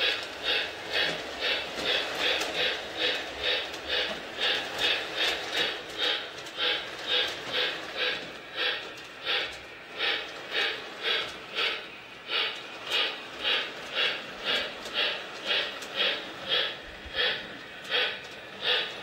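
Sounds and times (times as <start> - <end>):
model steam locomotive chuffing: 0.0 - 19.0.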